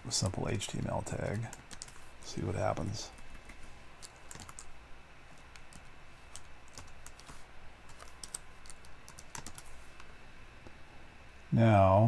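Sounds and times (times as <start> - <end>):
computer keyboard typing: 0.7 - 2.0, 3.1 - 4.7, 5.4 - 9.8.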